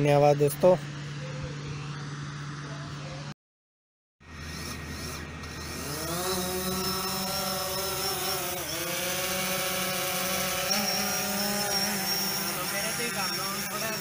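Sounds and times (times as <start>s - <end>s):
drone propellers buzzing: 0.0s - 3.3s, 4.2s - 14.0s.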